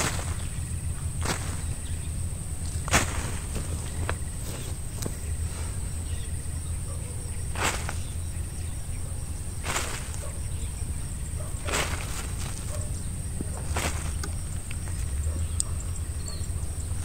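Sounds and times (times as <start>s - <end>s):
insects chirring: 0.0s - 17.0s
brief rustles: 9.6s - 10.5s, 11.5s - 15.7s.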